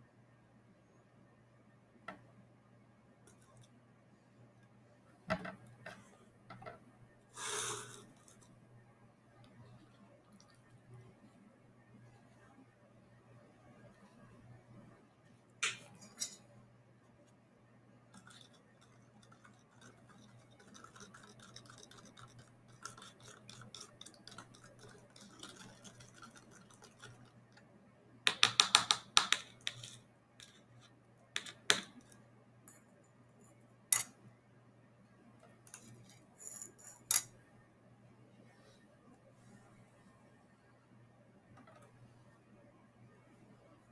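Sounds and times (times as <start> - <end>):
spoon scraping plastic cup: 18.2 - 27.3.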